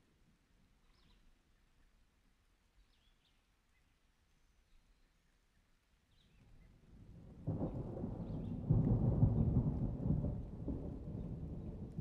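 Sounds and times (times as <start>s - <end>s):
rain: 5.3s - 12.0s
thunder rumbling: 7.1s - 12.0s.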